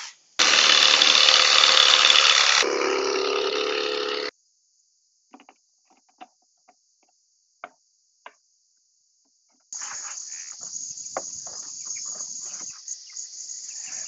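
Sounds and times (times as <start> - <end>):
insect chorus: 4.3 - 14.0.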